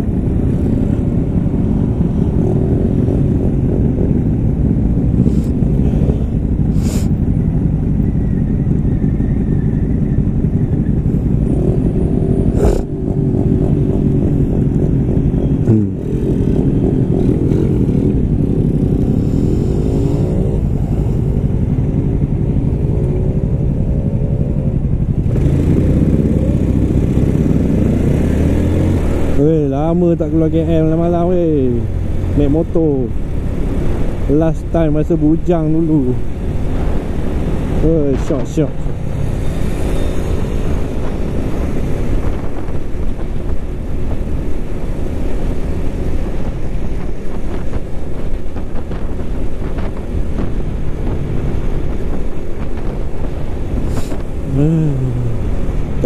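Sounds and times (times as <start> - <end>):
moped engine revving: 48.4 - 56.0.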